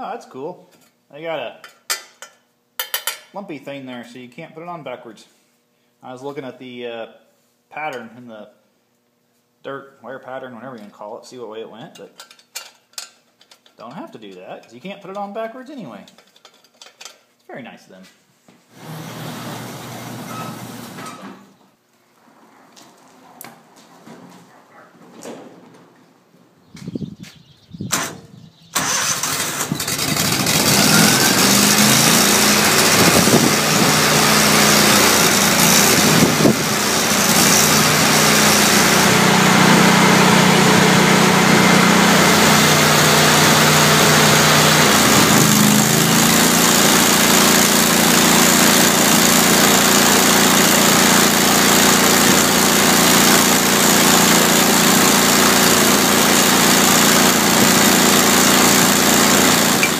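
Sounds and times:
generator engine running: 18.8s - 21.0s, 28.8s - 59.9s.

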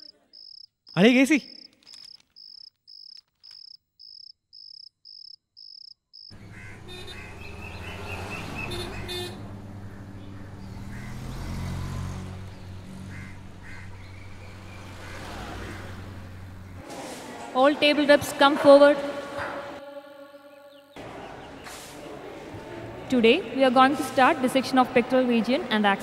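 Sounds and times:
cricket chirping: 0.0s - 6.4s.

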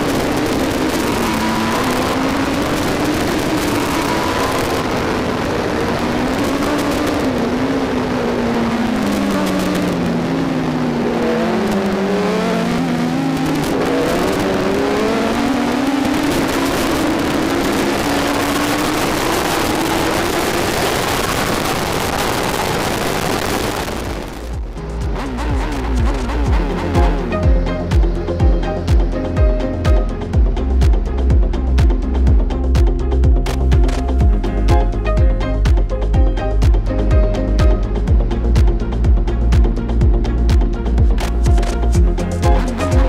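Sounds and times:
wind rush: 0.0s - 12.2s, 12.8s - 29.0s
motorcycle engine at speed: 0.0s - 43.0s.

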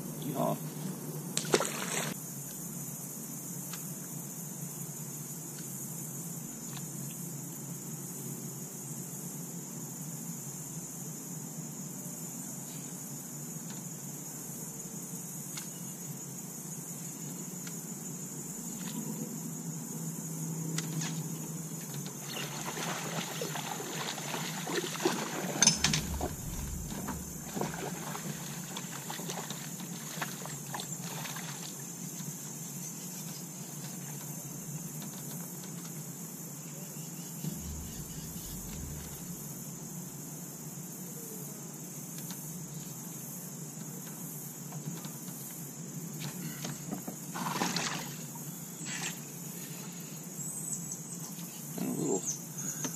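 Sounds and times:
insect chorus: 0.0s - 52.9s
sharp knock: 25.6s - 27.8s
low thump: 25.6s - 28.1s, 37.4s - 39.4s.

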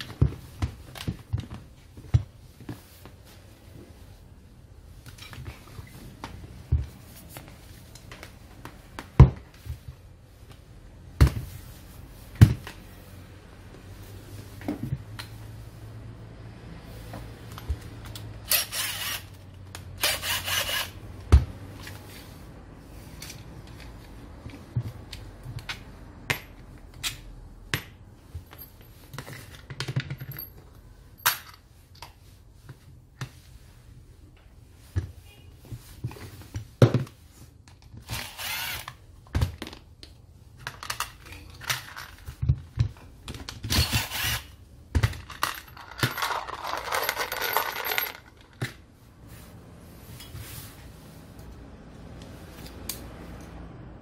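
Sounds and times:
impact driver whirring: 38.1s - 38.9s, 43.7s - 44.5s
plastic tool parts handled: 40.6s - 48.8s.

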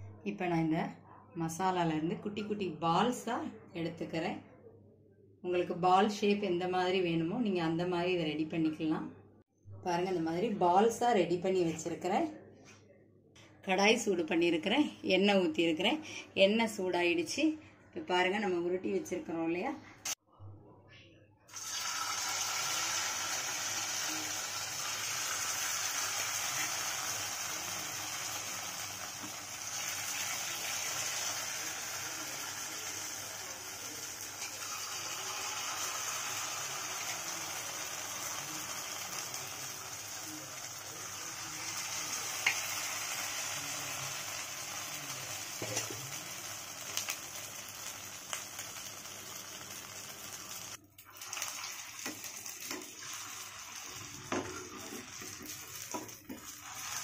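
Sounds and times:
deep-frying sizzle in oil: 21.5s - 57.0s.

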